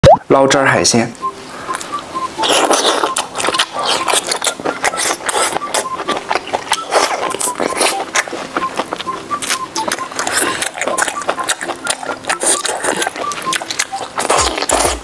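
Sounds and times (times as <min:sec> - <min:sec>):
wet slurping and chewing: 0:01.7 - 0:15.0.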